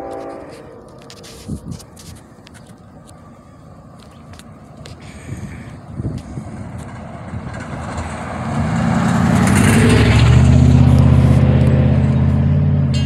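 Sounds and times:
low engine hum: 0.0s - 13.0s
car driving past: 6.3s - 13.0s.

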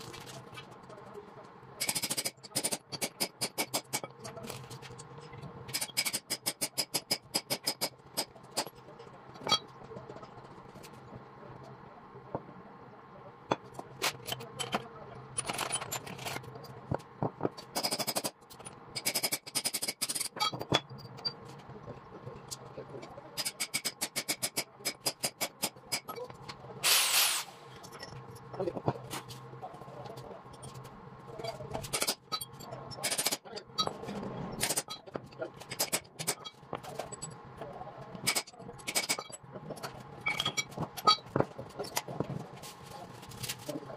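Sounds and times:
short loud hiss: 26.8s - 27.6s.

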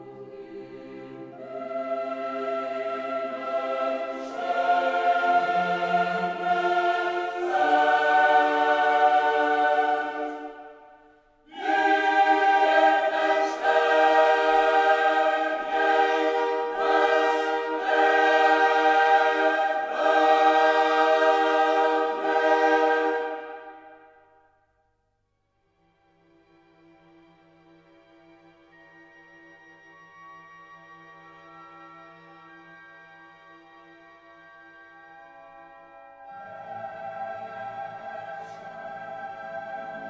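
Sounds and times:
choir singing held chords: 0.0s - 24.4s, 36.0s - 40.0s.

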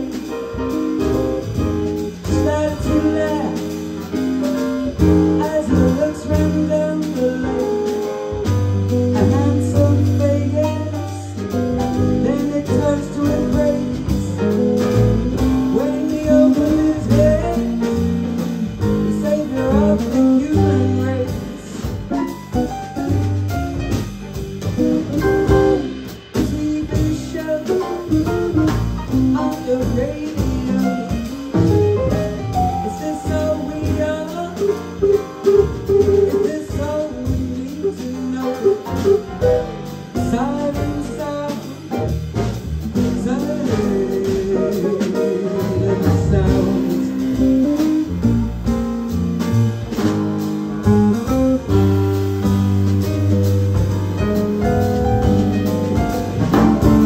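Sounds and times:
double bass: 0.0s - 57.0s
drum kit: 0.0s - 57.0s
piano: 0.0s - 57.0s
woman singing: 2.2s - 3.7s, 5.4s - 7.7s, 9.2s - 11.2s, 12.0s - 14.4s, 15.7s - 17.8s, 19.0s - 22.0s, 26.4s - 28.1s, 29.1s - 31.2s, 36.2s - 38.8s, 40.3s - 41.8s, 43.1s - 47.2s.

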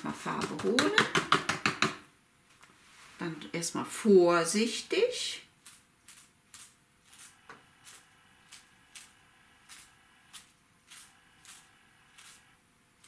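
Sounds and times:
toothbrush bristles flicking: 5.6s - 12.5s.

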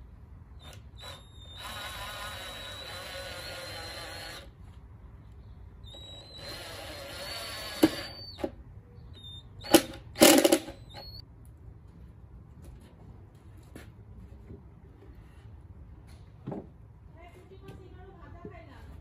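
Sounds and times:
impact driver motor whining: 5.8s - 8.5s.

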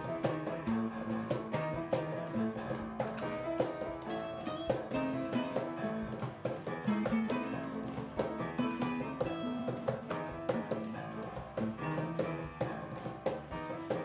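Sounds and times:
cajon beat: 0.0s - 14.0s
electric guitar playing blues: 0.0s - 14.0s.

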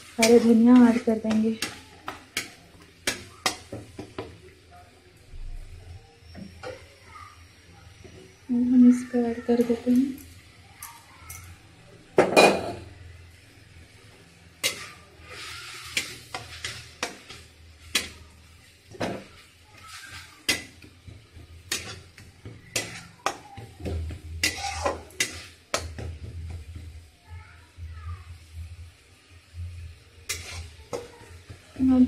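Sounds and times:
spatula knocking and scraping pan: 0.0s - 4.4s, 14.6s - 27.0s, 30.2s - 32.0s
light sizzle: 0.0s - 32.0s.

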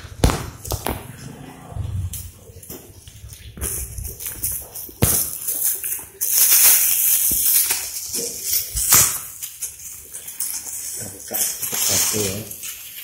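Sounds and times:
plastic bag crinkling: 3.3s - 13.0s.

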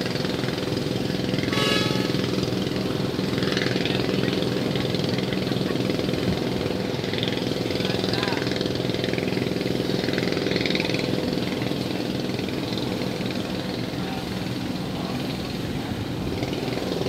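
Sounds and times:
ship diesel engine idling: 0.0s - 17.0s.

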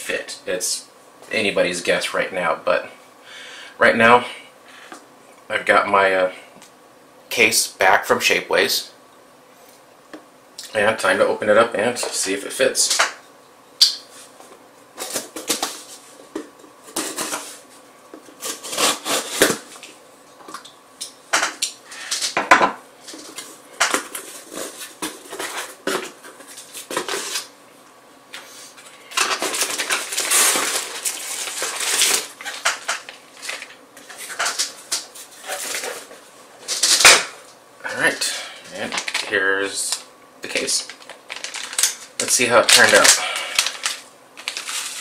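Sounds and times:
package rustling and crinkling: 29.1s - 37.2s, 38.8s - 45.0s.

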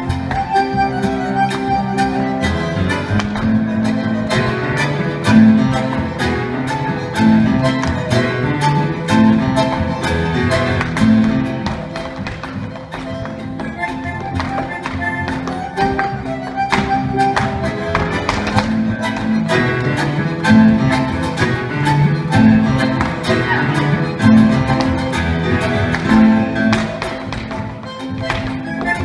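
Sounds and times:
bandoneon: 0.0s - 29.0s
double bass: 0.0s - 29.0s
piano: 0.0s - 29.0s
violin: 0.0s - 29.0s
foot stamps on wooden stage: 2.9s - 4.4s, 7.4s - 8.5s, 9.5s - 29.0s.

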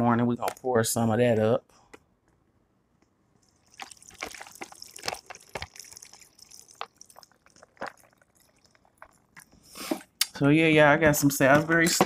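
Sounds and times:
drink pouring into plastic cup: 3.4s - 9.6s.

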